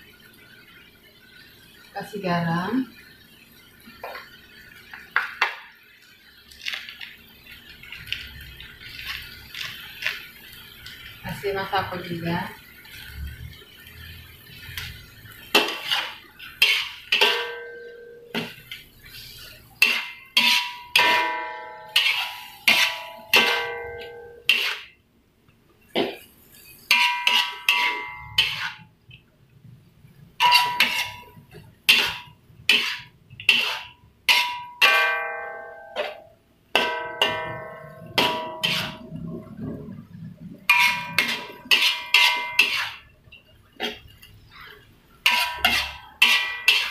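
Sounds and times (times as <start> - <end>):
metal spatula clanking on a wok: 15.5 - 18.6, 19.8 - 24.9, 26.8 - 28.8, 30.4 - 39.1, 40.7 - 43.0, 45.2 - 46.9.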